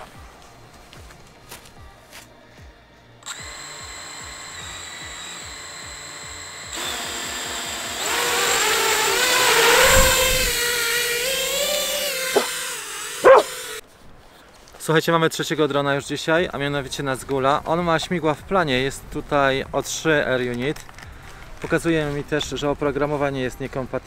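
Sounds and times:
quadcopter motors whining: 3.2 - 13.8.

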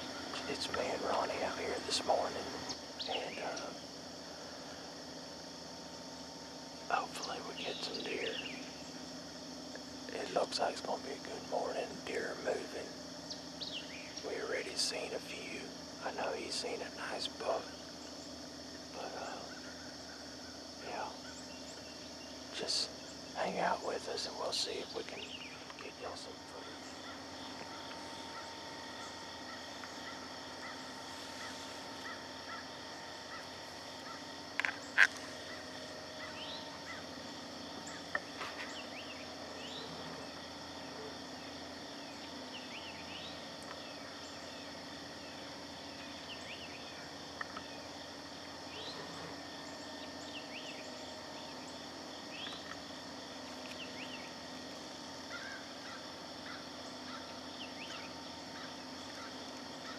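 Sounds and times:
high insect drone: 0.0 - 59.9
bird chirps: 6.9 - 9.1, 13.2 - 15.7, 16.3 - 52.9, 53.5 - 54.5, 55.1 - 59.9.

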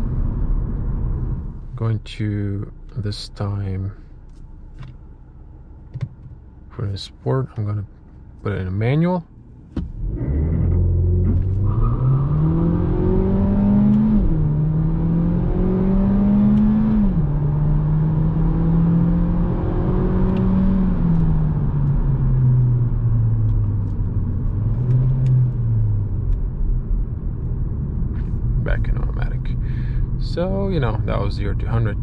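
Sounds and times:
car engine revving at full throttle: 9.8 - 26.2.

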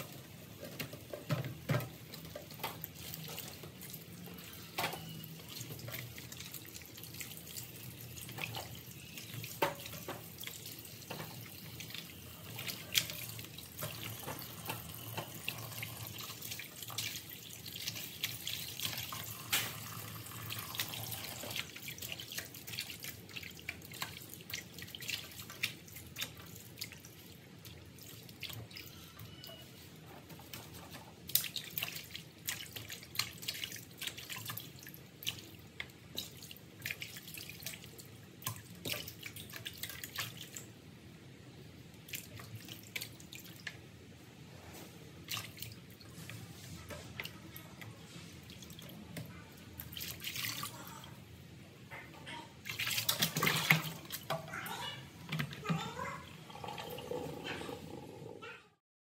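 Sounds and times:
tap water running: 0.0 - 40.8, 51.9 - 58.4.

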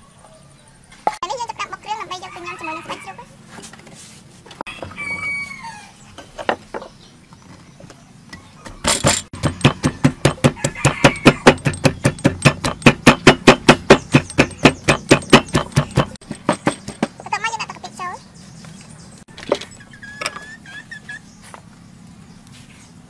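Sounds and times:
pestle pounding in wooden mortar: 8.6 - 17.3.

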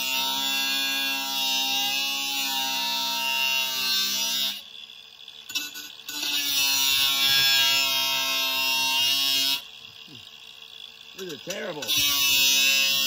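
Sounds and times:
angle grinder grinding metal: 0.0 - 13.0.

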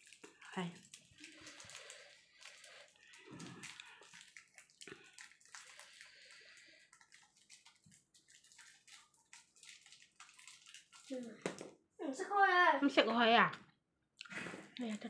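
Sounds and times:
wet eating clicks and smacks: 0.0 - 11.6.

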